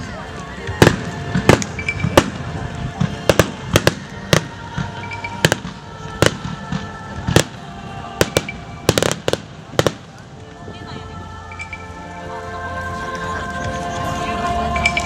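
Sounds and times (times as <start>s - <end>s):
fireworks bangs: 0.6s - 10.2s.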